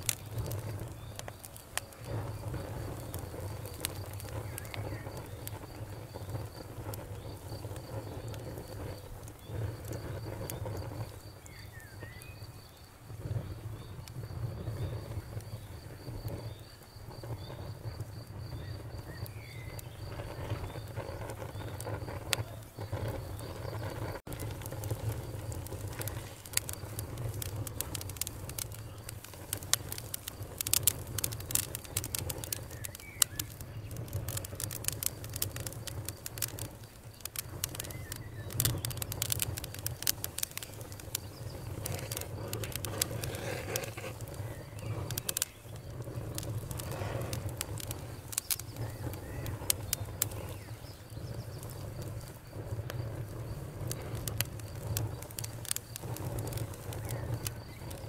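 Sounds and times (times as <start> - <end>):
logs crackling and popping: 0.0 - 58.0
low rumble of flames: 0.0 - 58.0.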